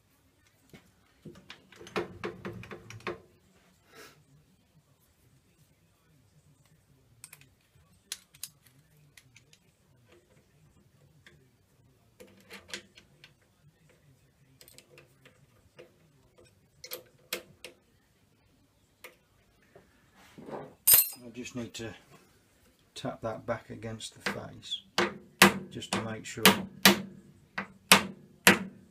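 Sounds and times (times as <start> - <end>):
metal clicks and knocks: 1.2 - 3.3.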